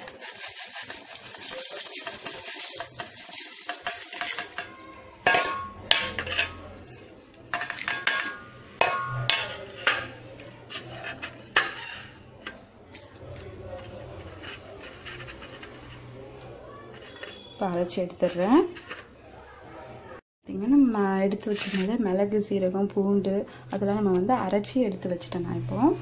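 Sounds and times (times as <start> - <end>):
seeds pattering into metal jar: 0.0 - 4.7
steel plate clinking on jar: 0.4 - 10.1.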